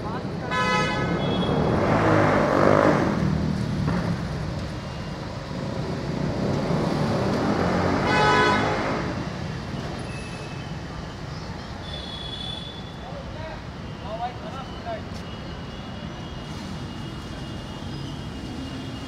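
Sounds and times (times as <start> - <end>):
traffic engines rumbling: 0.0 - 19.0
car horn honking: 0.5 - 1.6, 8.0 - 8.8.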